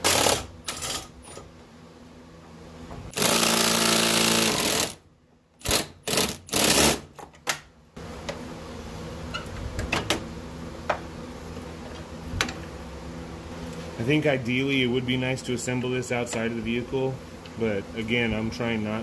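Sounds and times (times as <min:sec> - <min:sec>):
electric ratchet whirring: 0:00.0 - 0:01.1, 0:03.1 - 0:05.0, 0:05.6 - 0:07.1
steady low hum: 0:07.7 - 0:19.0.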